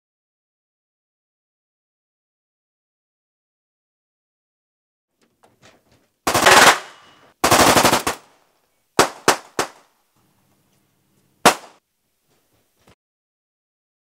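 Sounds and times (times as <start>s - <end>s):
automatic gunfire bursts: 6.3s - 8.2s
single gunshots: 6.3s - 8.2s, 9.0s - 9.8s, 11.4s - 11.8s.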